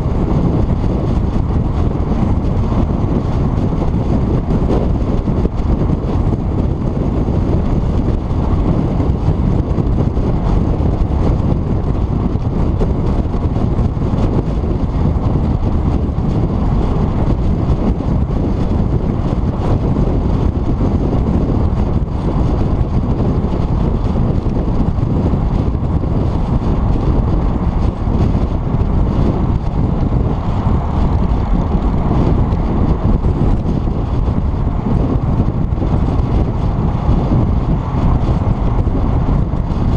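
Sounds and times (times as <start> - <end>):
car road noise: 0.0 - 39.9
wind rumble: 0.0 - 39.9.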